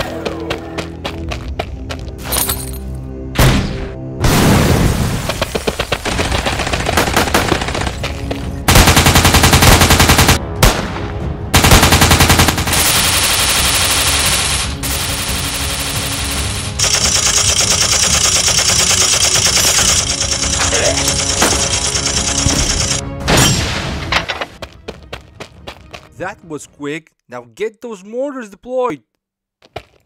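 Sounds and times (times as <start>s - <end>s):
machine-gun fire: 5.3s - 8.0s, 8.7s - 10.9s, 11.6s - 23.0s.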